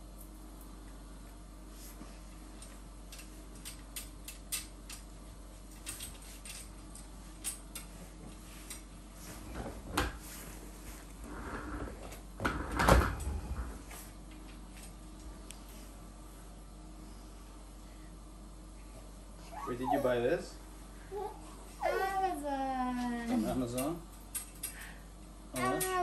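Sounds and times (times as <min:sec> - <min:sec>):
small clicks and taps of parts: 0:02.6 - 0:05.1, 0:05.7 - 0:08.9, 0:23.7 - 0:24.9.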